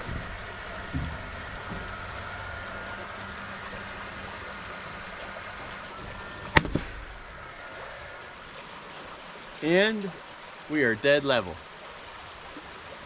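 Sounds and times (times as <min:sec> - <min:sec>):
creek flowing: 0:00.0 - 0:13.0
nail gun firing: 0:06.6 - 0:07.0.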